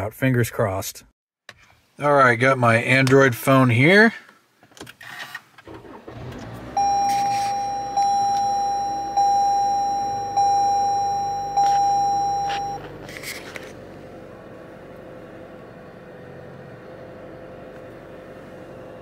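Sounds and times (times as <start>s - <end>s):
car warning chime dinging: 6.7s - 12.9s.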